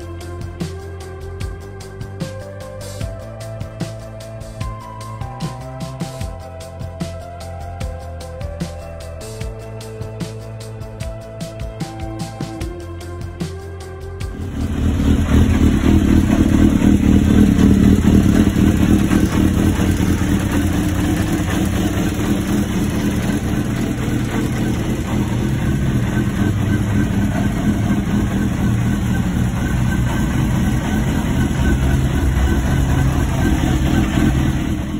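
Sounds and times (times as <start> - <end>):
motorcycle engine idling: 14.2 - 34.9.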